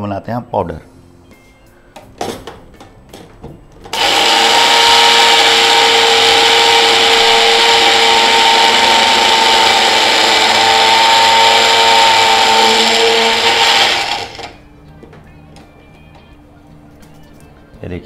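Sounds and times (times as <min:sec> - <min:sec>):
electric grinder whining: 0:03.9 - 0:14.6.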